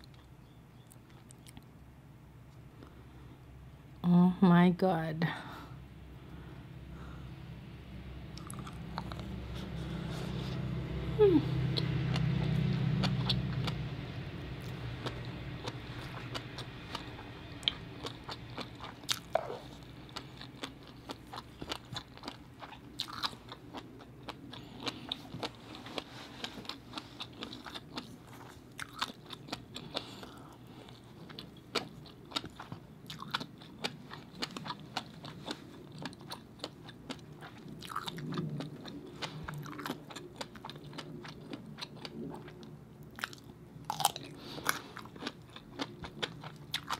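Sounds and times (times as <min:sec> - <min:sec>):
close-up wet chewing: 0:08.4 - 0:10.6, 0:11.7 - 0:13.9, 0:14.6 - 0:46.9.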